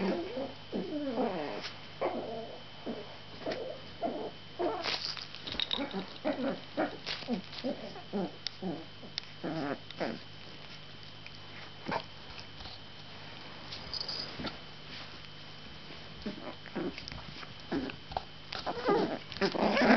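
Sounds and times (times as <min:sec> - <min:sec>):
puppy small noises: 0:00.0 - 0:12.8, 0:16.2 - 0:19.9
puppy sniffing and snuffling: 0:04.7 - 0:19.9.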